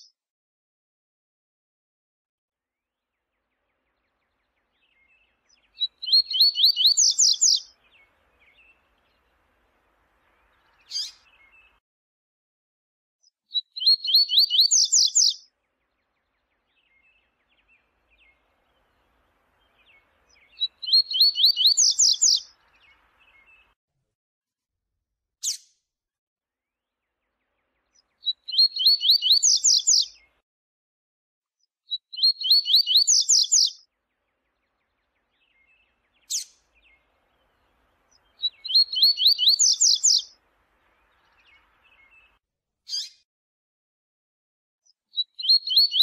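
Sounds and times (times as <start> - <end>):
bird song with trill: 3.0 - 11.8, 13.2 - 23.8, 27.0 - 30.4, 31.6 - 43.2, 44.8 - 46.0.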